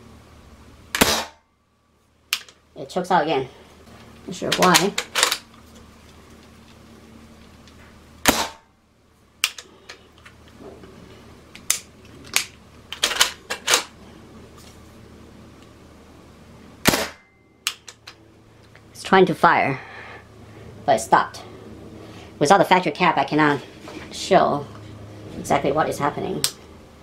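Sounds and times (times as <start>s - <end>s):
air rifle shot: 1.0s - 1.4s, 8.2s - 8.6s, 16.8s - 17.3s
rifle action clicks: 4.5s - 5.5s.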